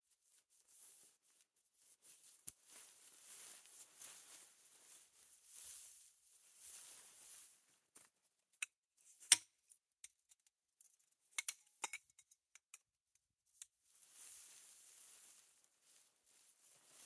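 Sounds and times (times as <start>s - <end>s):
tent fabric rustling: 0.0s - 8.2s, 13.8s - 17.0s.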